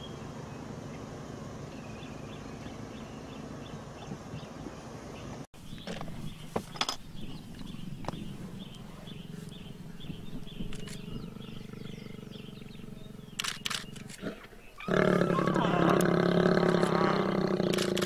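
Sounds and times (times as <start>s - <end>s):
lion growling low: 7.2s - 18.0s.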